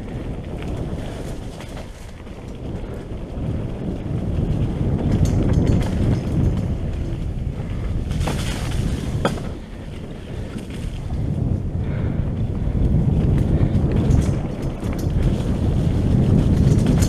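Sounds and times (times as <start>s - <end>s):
low rumble of bike tyres: 0.0s - 17.0s
wind buffeting microphone: 0.0s - 17.0s
sharp knocks from bike: 8.1s - 9.7s.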